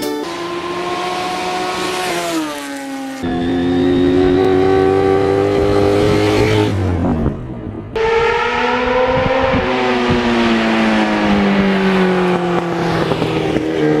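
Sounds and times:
motorcycle engine running: 0:09.4 - 0:14.0.

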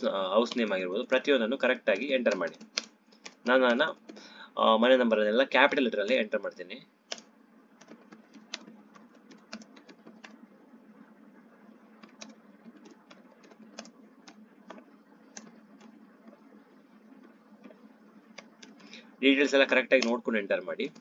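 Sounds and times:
keyboard typing: 0:00.0 - 0:04.3, 0:06.1 - 0:10.4, 0:11.9 - 0:16.5, 0:17.2 - 0:19.0, 0:19.6 - 0:21.0.

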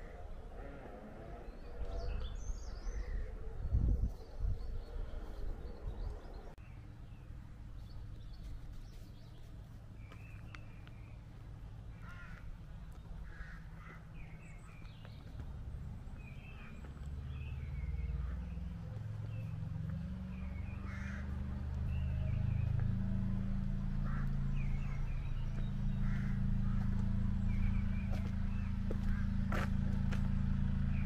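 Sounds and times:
steady low rumble: 0:00.0 - 0:31.0
crows cawing: 0:12.0 - 0:12.5, 0:13.2 - 0:14.2, 0:20.8 - 0:21.4, 0:24.0 - 0:25.0, 0:25.9 - 0:27.1, 0:28.9 - 0:29.6.

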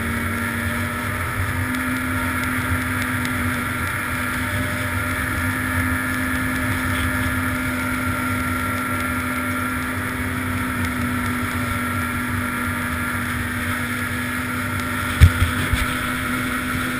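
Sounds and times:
snowmobile engine droning: 0:00.0 - 0:16.9
wind buffeting microphone: 0:15.0 - 0:16.9.

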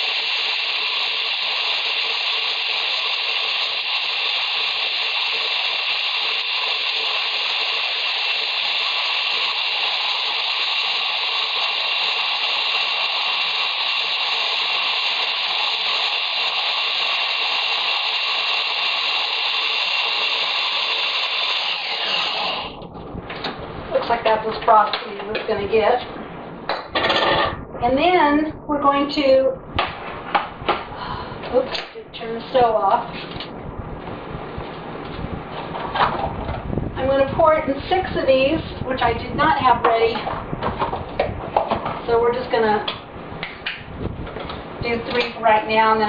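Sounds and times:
blender running: 0:00.0 - 0:22.8.

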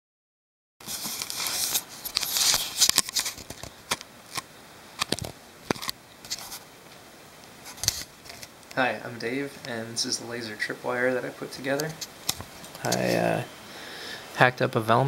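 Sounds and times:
camera handling rubbing and rustling: 0:00.8 - 0:06.7, 0:07.5 - 0:08.6, 0:11.9 - 0:13.2.

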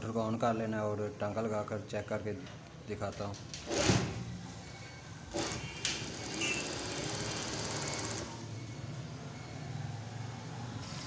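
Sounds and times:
sewing machine stitching: 0:03.6 - 0:04.2, 0:05.3 - 0:08.4
sewing machine motor humming: 0:05.3 - 0:08.4.

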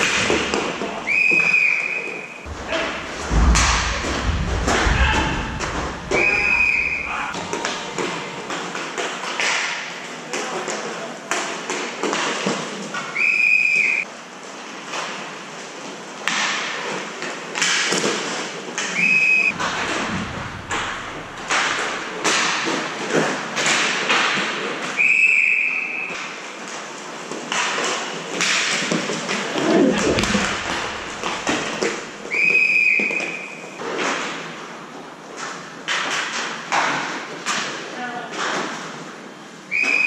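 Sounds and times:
referee's whistle: 0:39.7 - 0:40.0.

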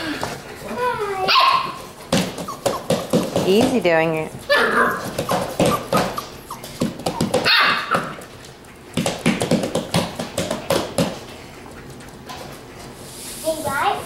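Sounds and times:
puppies yipping and barking: 0:00.7 - 0:03.4, 0:04.4 - 0:08.3.

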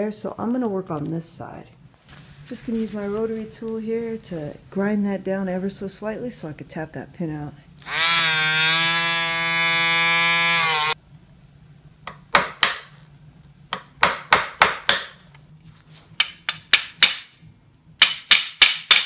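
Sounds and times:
rotary tool grinding metal: 0:07.8 - 0:11.0
hammer striking metal pin: 0:16.2 - 0:17.4, 0:18.0 - 0:19.0.

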